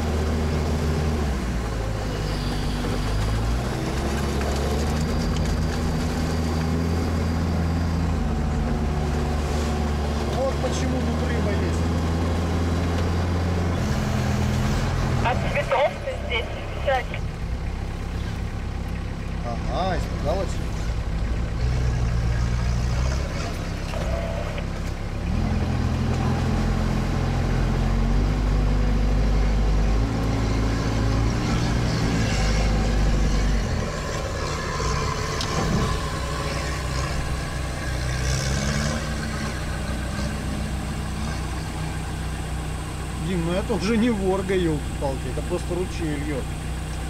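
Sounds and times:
all-terrain vehicle engine revving: 0:00.0 - 0:47.0.

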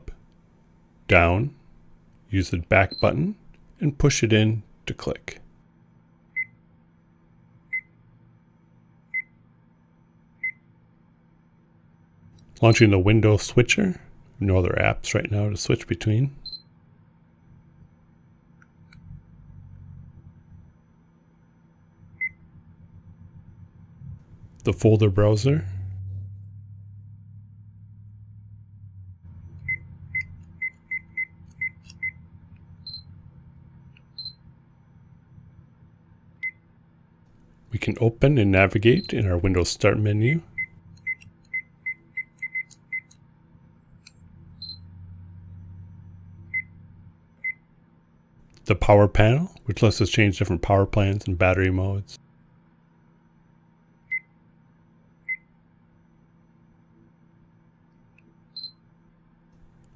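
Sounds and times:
short electronic beeps: 0:29.4 - 0:32.2, 0:32.8 - 0:33.2, 0:34.1 - 0:34.4, 0:40.3 - 0:43.1, 0:44.6 - 0:44.9, 0:58.6 - 0:58.8
higher single beeps: 0:32.8 - 0:33.2, 0:34.1 - 0:34.4, 0:58.6 - 0:58.8.

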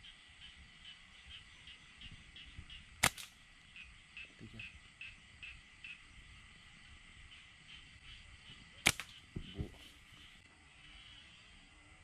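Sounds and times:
night insects chirping: 0:00.0 - 0:12.0
slingshot snaps: 0:03.0 - 0:03.4, 0:08.8 - 0:09.2.

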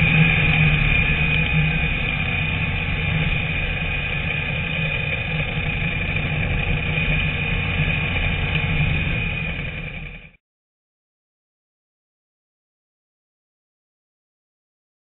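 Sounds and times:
race car engine running: 0:00.0 - 0:10.4.

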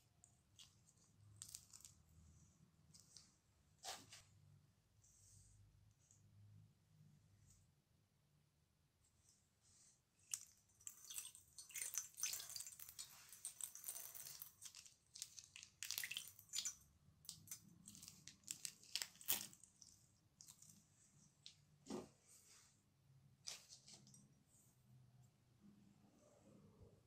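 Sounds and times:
slime squelching: 0:10.3 - 0:20.9.

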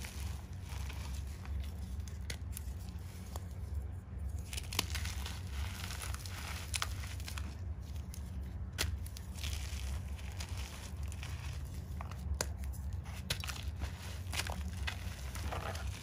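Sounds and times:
chalk crunching and crumbling: 0:00.0 - 0:16.0
steady low hum: 0:00.0 - 0:16.0
chalk snapping: 0:04.5 - 0:16.0.

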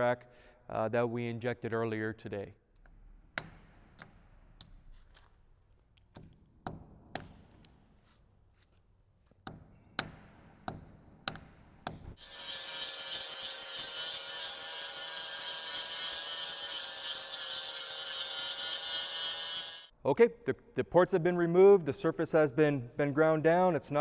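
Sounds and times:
grinder whining: 0:12.2 - 0:19.9.

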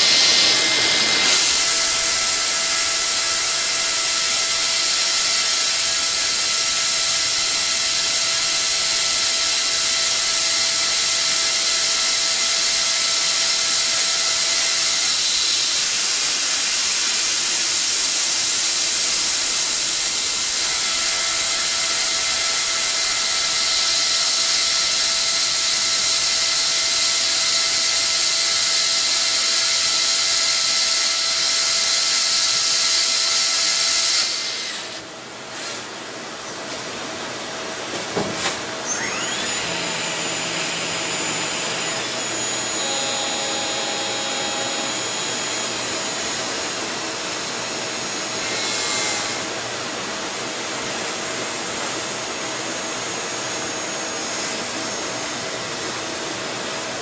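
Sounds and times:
lathe hissing: 0:00.0 - 0:06.3, 0:39.0 - 0:46.9
lathe whining: 0:00.0 - 0:17.2, 0:18.4 - 0:35.0, 0:38.8 - 0:50.0.

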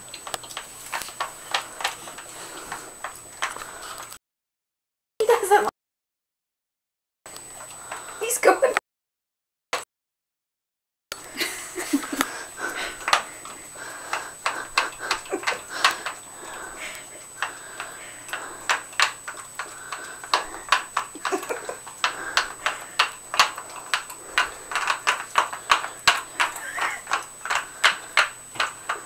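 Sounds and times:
dogs licking ice cream: 0:11.4 - 0:29.0
plastic cups clicking: 0:11.4 - 0:29.0.

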